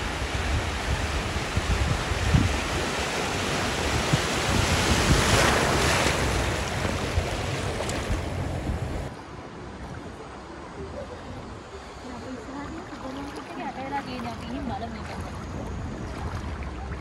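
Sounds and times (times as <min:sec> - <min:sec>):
wind buffeting microphone: 0:00.0 - 0:10.2
floodwater surging and splashing: 0:00.0 - 0:11.1, 0:12.0 - 0:17.0.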